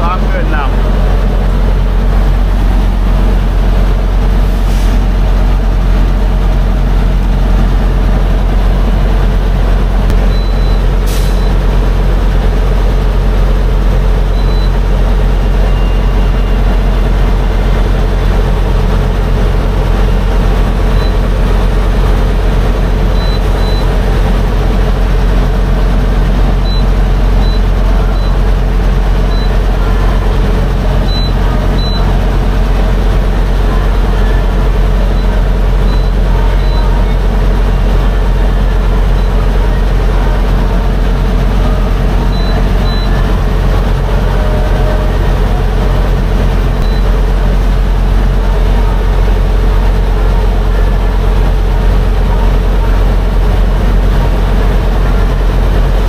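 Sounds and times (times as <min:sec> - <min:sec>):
diesel truck engine idling: 0:00.0 - 0:56.0
short electronic keypad beeps: 0:10.1 - 0:11.6.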